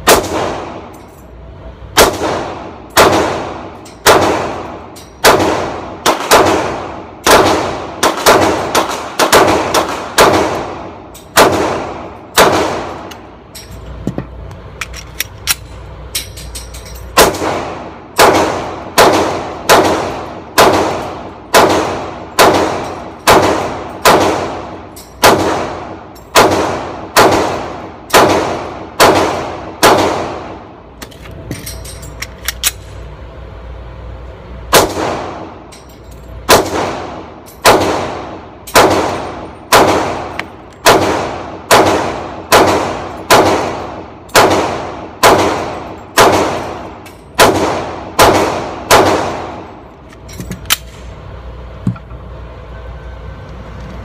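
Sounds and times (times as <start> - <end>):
pistol shots with ringing tail: 0.0 - 1.0, 1.9 - 13.1, 16.5 - 30.8, 34.7 - 35.8, 36.4 - 49.9.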